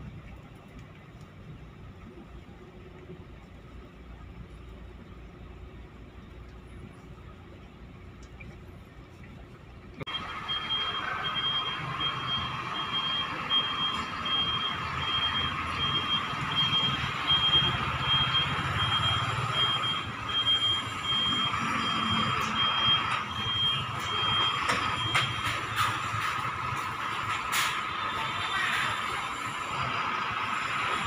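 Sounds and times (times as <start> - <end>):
diesel engine running: 0.0 - 31.0
reversing alarm beeps: 10.1 - 29.9.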